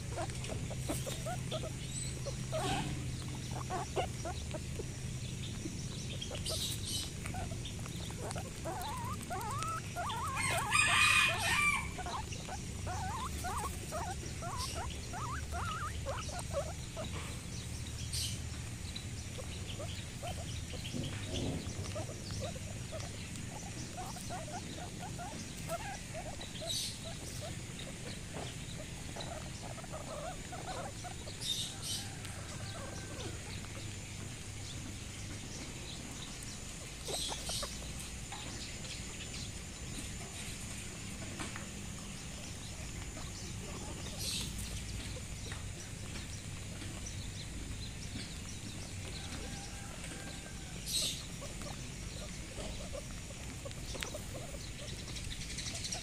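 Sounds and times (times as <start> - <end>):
animals clucking and chirping: 0.0 - 56.0.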